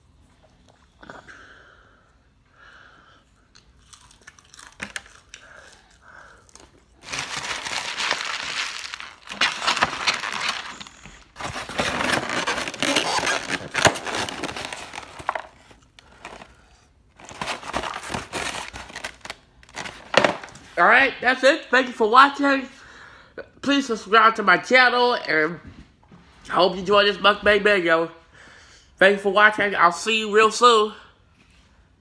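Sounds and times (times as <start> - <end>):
paper wrappers crinkling: 6.9 - 20.8.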